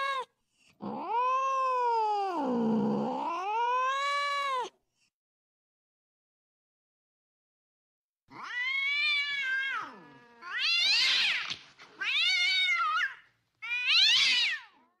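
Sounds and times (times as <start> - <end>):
cat yowling: 0.0 - 4.7, 8.3 - 14.8.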